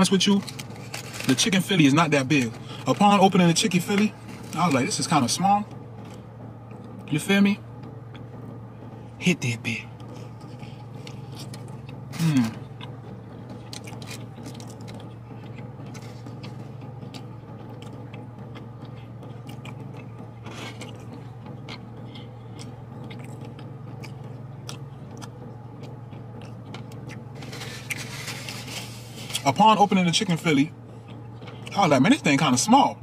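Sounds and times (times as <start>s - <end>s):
chewing and biting sandwich: 0.0s - 7.1s, 9.9s - 31.9s
car cabin hum: 0.0s - 33.0s
wrapper rustling: 0.2s - 1.6s
person humming mmm: 10.5s - 12.9s.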